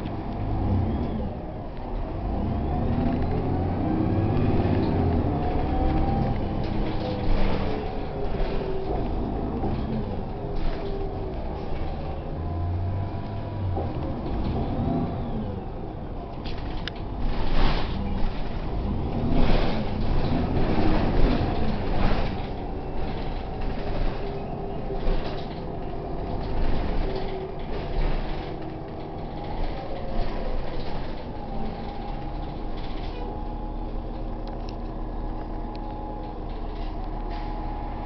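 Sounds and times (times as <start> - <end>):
bus engine running: 0.0 - 38.0
bus body rattling and knocking: 1.7 - 37.7.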